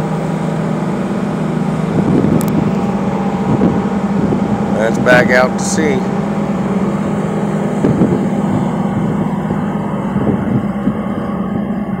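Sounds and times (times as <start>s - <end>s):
boat engine droning: 0.0s - 12.0s
wind and water rushing: 0.0s - 12.0s.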